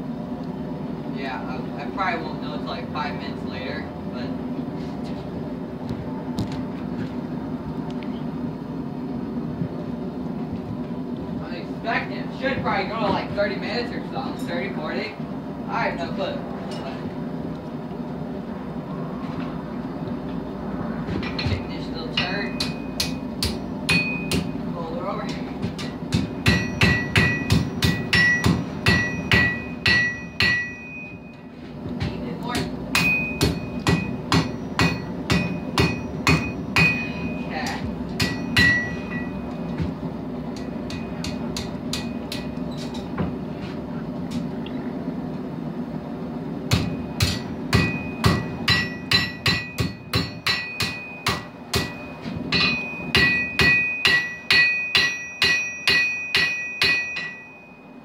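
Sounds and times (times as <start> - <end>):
hammer striking steel on anvil: 21.2 - 24.6, 25.3 - 31.4, 32.6 - 39.6, 40.5 - 43.1, 46.7 - 58.0.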